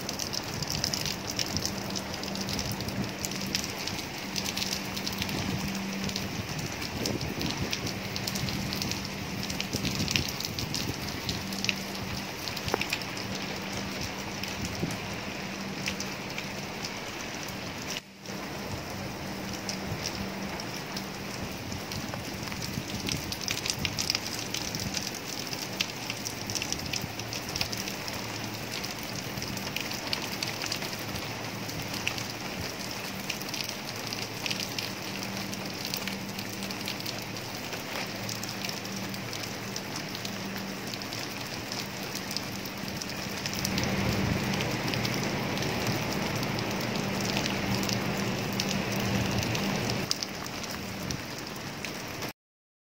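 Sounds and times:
rain falling on plants: 0.0s - 52.3s
low hum: 38.7s - 50.1s.

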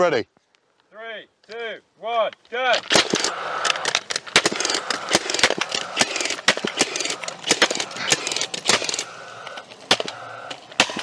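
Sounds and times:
staple guns firing: 2.8s - 11.0s
mechanical whir: 3.0s - 11.0s.

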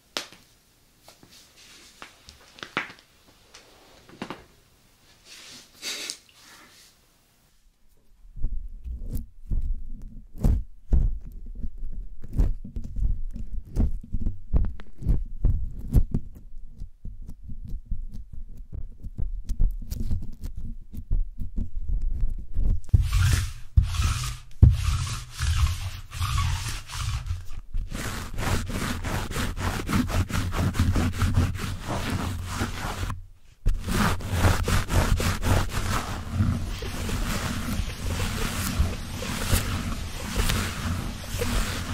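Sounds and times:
fabric rubbing on microphone: 1.3s - 2.2s, 8.8s - 16.2s, 22.2s - 41.9s
fingers rubbing microphone grille: 22.8s - 41.9s
lint roller rubbing foam windscreen: 22.9s - 41.9s.

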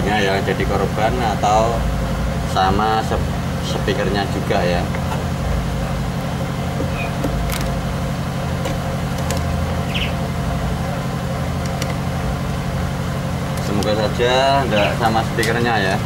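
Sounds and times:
low mechanical drone: 0.0s - 16.0s
screwdriver clicks and taps: 11.6s - 12.0s.

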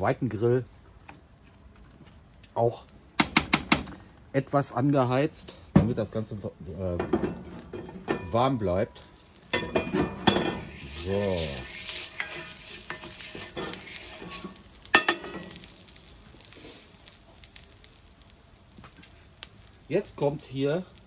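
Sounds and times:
oil sizzling in a pan: 2.2s - 21.0s
wooden spoon stirring and scraping: 9.6s - 15.7s.

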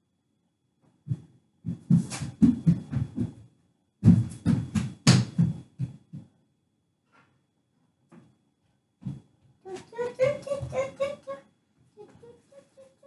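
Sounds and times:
child's footsteps thumping: 1.1s - 3.4s, 4.0s - 6.3s.

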